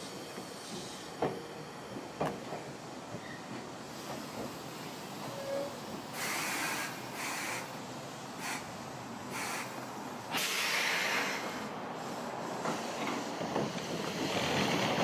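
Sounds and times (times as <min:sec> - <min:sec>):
compressed air hissing bursts: 0:03.8 - 0:13.4.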